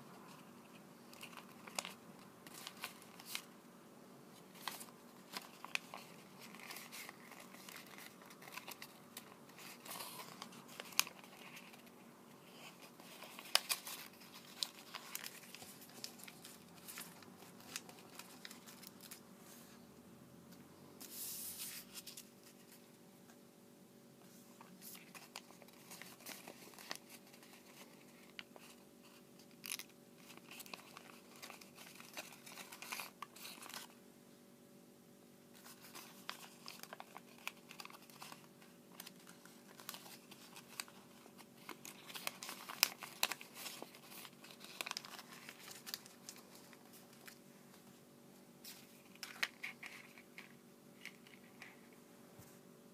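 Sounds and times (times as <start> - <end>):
faint steady hum: 0.0 - 52.9
paper rustling and crinkling: 0.3 - 3.5, 4.3 - 19.2, 21.0 - 22.9, 24.5 - 34.0, 35.6 - 48.0, 48.6 - 52.0.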